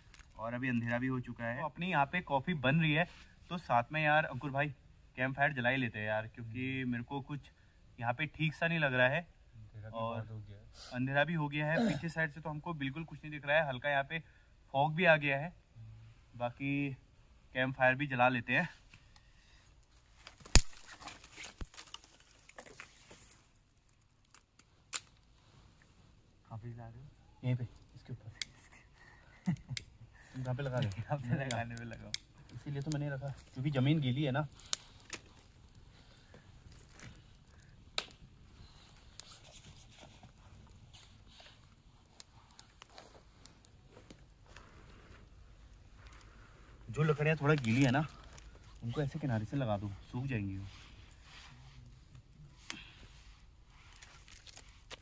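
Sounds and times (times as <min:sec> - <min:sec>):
twigs and leaves rustling: 0:19.0 - 0:26.2, 0:30.2 - 0:51.5, 0:52.1 - 0:55.0
sticks laid on fire: 0:20.2 - 0:25.3, 0:29.5 - 0:46.4
twig cracking sharply: 0:20.4 - 0:22.6.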